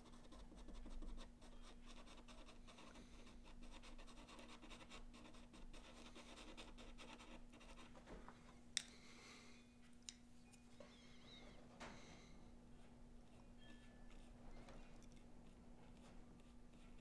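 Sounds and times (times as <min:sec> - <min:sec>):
pastel pencil scratching on paper: 0:00.0 - 0:08.0, 0:12.8 - 0:17.0.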